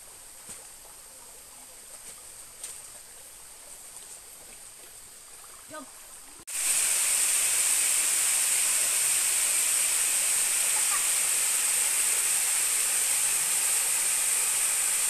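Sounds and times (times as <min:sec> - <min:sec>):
loud high-pitched hiss: 0:06.5 - 0:15.0.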